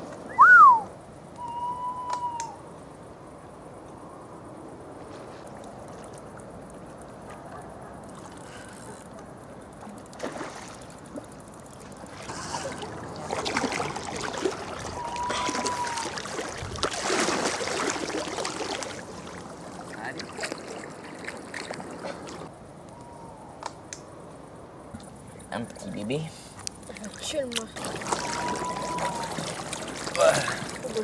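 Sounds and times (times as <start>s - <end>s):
short whistle-like call: 0.3s - 2.6s, 15.0s - 16.1s
water splashing and sloshing: 5.0s - 22.5s, 26.4s - 31.0s.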